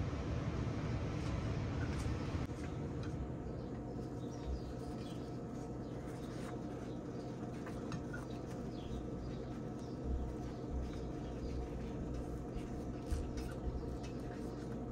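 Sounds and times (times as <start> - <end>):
low background hum: 0.0 - 14.9
tortilla rustling by hand: 3.8 - 14.9.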